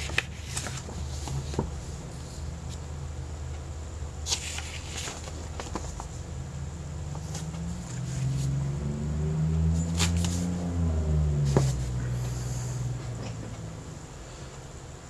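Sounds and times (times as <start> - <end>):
paper booklet handled: 0.0 - 2.8, 4.2 - 6.2, 7.1 - 8.5, 9.8 - 10.5
low droning hum: 0.0 - 15.0.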